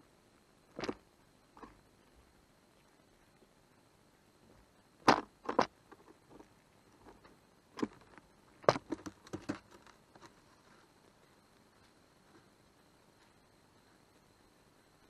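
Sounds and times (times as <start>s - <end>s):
squirrel knocking and scratching: 5.0s - 10.4s.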